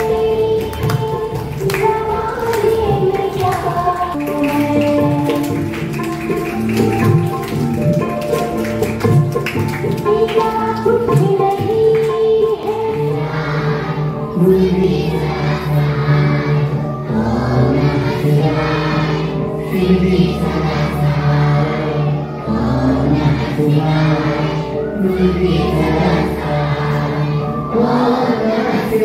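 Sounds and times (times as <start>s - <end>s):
group singing in unison: 10.1s - 29.0s.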